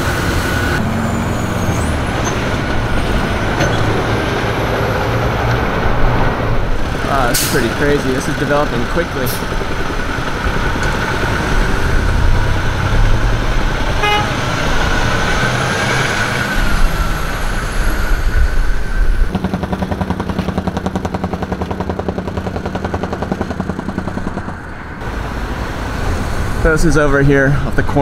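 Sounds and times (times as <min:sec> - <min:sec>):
road traffic rumbling past: 0:00.0 - 0:28.0
engine idling: 0:06.6 - 0:14.8.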